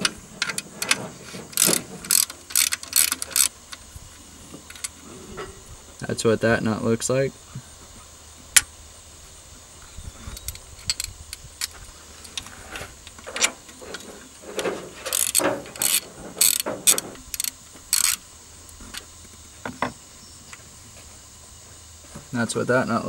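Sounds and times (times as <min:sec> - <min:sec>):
socket ratchet clicking: 0:00.0 - 0:03.8, 0:15.1 - 0:18.2.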